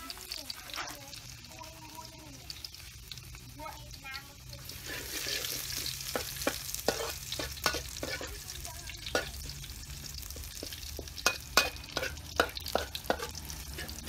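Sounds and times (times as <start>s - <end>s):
food sizzling in oil: 0.0s - 14.0s
metal spatula scraping a wok: 4.1s - 14.0s.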